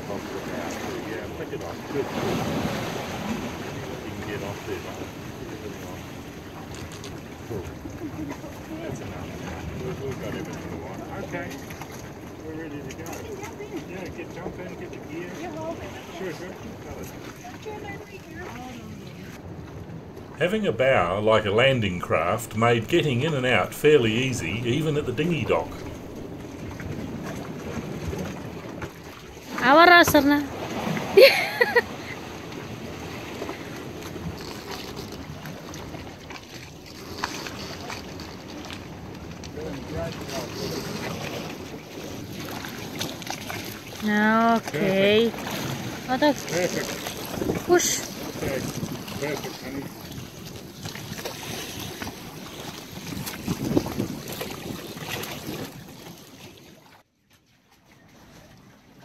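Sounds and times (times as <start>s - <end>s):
moving sea water: 0.0s - 59.0s
wind noise on microphone: 47.2s - 50.3s, 52.9s - 55.9s.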